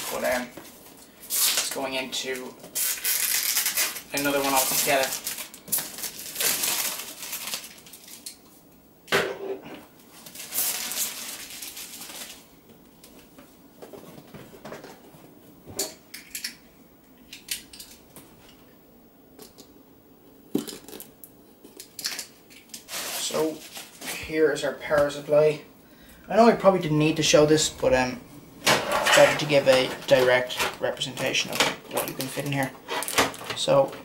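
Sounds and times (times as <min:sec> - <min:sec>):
plastic wrap rustling: 0:00.0 - 0:08.5, 0:10.0 - 0:13.3, 0:21.8 - 0:24.3, 0:26.3 - 0:33.9
packaging crinkling: 0:02.8 - 0:08.5, 0:10.2 - 0:12.5.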